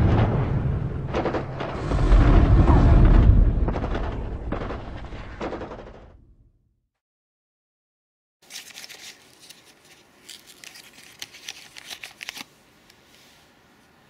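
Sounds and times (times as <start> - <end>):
deep explosion booms: 0.0 - 6.6
low rumble: 0.0 - 6.6.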